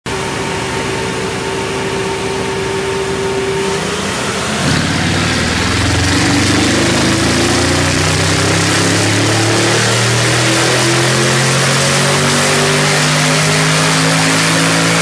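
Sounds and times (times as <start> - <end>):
car exhaust pulsing: 3.6 - 15.0.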